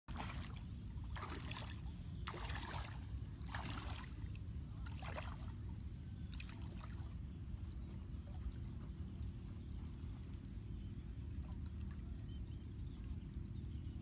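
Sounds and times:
water splashing from wading: 0.1s - 7.3s
steady low rumble: 0.1s - 14.0s.

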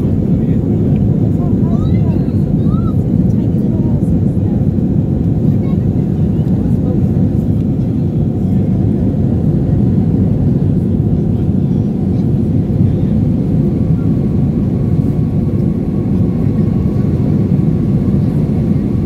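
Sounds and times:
jet engines roaring: 0.0s - 19.0s.

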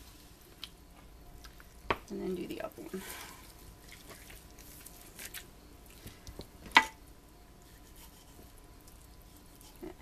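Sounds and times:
wet squishing of raw chicken: 3.0s - 6.4s.

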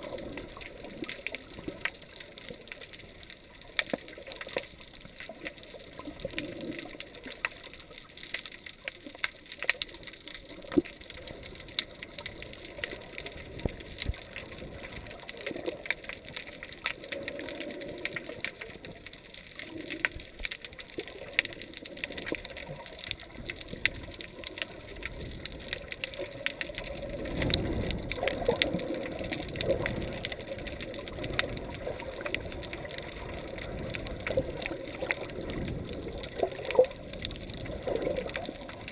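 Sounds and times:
sharp clicks and crackles: 0.0s - 38.9s
underwater sloshing and gurgling: 0.0s - 38.9s.

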